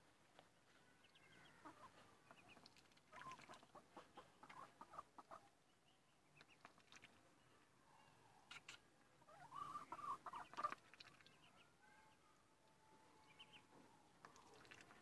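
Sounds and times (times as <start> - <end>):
ducklings peeping: 1.0 - 7.2, 8.5 - 12.2, 13.2 - 13.7.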